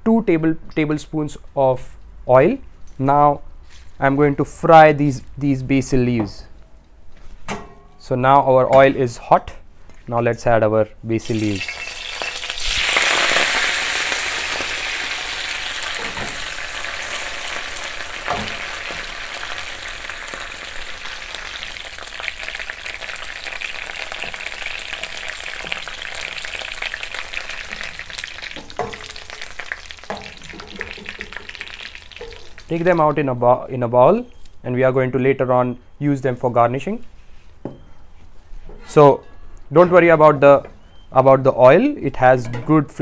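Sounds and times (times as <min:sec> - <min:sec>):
leaves sizzling in hot oil: 0:11.2 - 0:33.0
wooden spatula knocking pan: 0:18.2 - 0:19.2, 0:28.5 - 0:32.6.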